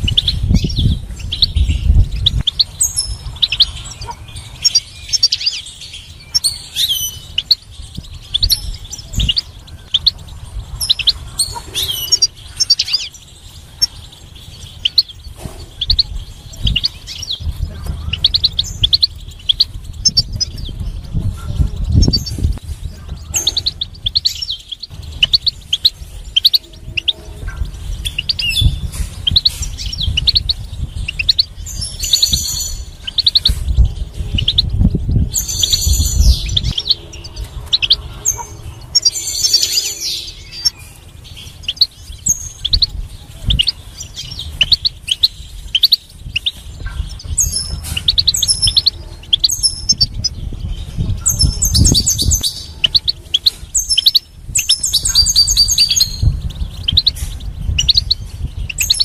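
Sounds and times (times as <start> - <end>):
buzzy bird trills: 0.0 - 59.0
goldfinch twittering: 0.0 - 59.0
low rumble: 0.0 - 59.0.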